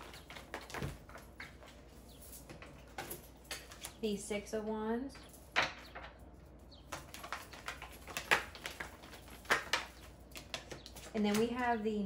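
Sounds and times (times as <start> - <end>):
cards being shuffled: 6.9 - 11.6.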